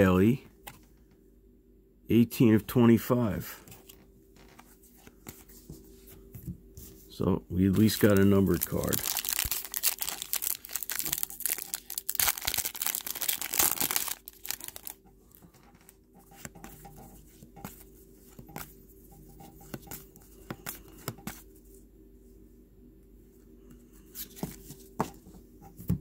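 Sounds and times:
plastic wrapper tearing and crinkling: 7.8 - 15.0.

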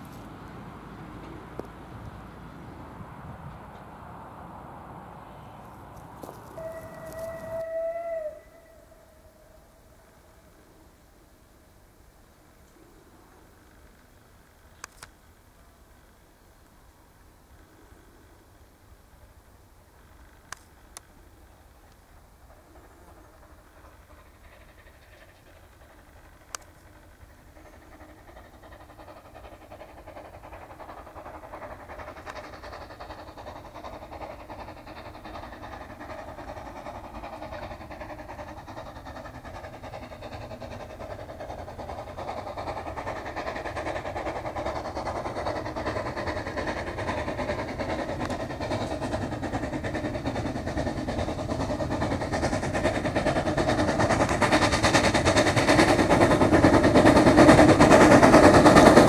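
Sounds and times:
steam locomotive chuffing: 0.0 - 59.0.

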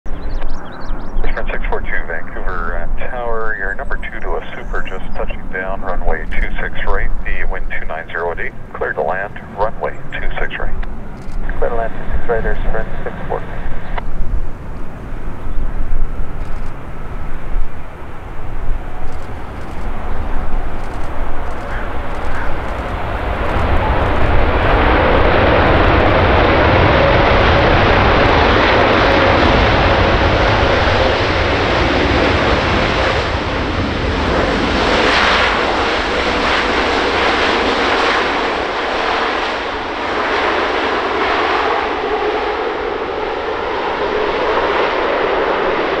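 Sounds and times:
faint steady whine: 0.1 - 26.0
jet engines roaring: 0.1 - 46.0.

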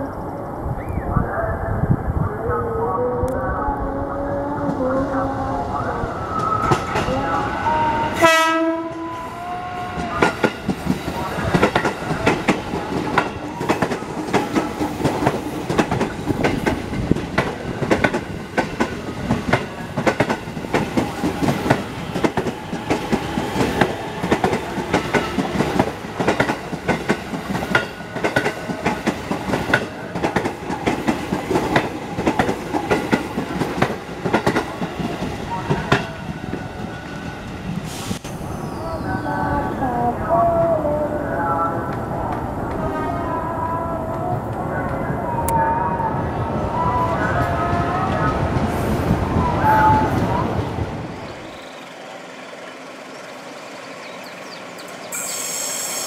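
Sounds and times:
train rumble: 0.0 - 56.0
train horn blast: 7.1 - 10.3.

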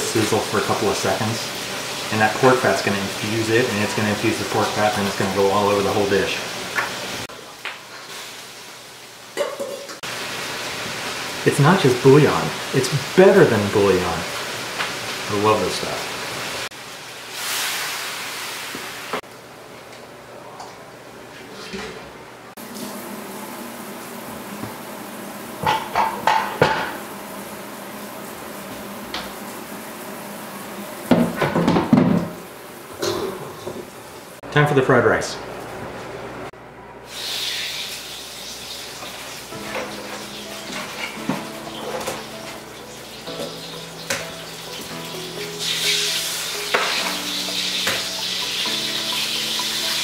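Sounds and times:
eggs frying in hot oil: 0.0 - 19.2, 37.0 - 50.0
pots and pans clattering: 9.4 - 10.0, 25.6 - 27.1, 31.1 - 33.9, 38.6 - 50.0.

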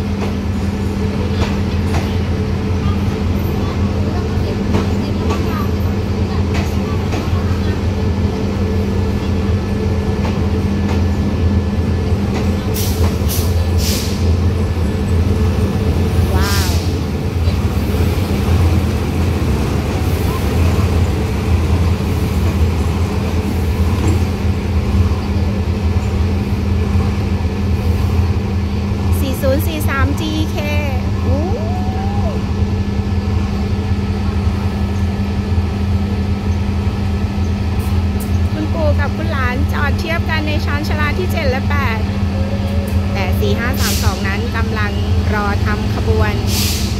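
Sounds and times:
diesel train idling: 0.0 - 46.9
short air hisses: 12.8 - 14.3, 46.5 - 46.9.

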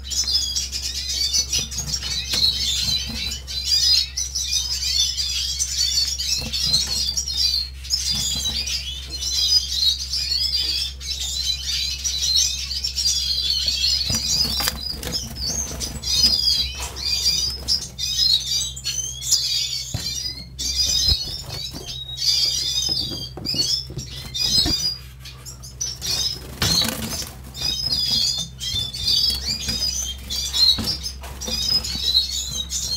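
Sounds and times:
finches twittering: 0.0 - 32.9
wing flutters: 20.0 - 32.9.

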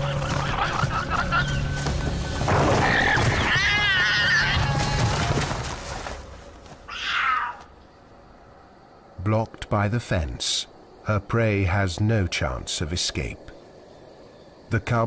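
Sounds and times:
background music with drone: 0.0 - 3.1
animal crying out shrilly: 2.7 - 5.2, 6.9 - 7.7.

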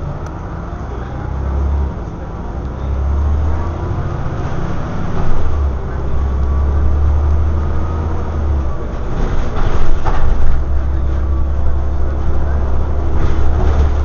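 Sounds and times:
bus engine drone: 0.0 - 14.0
road noise: 0.0 - 14.0
rattles and knocks: 8.9 - 11.2, 12.1 - 14.0.

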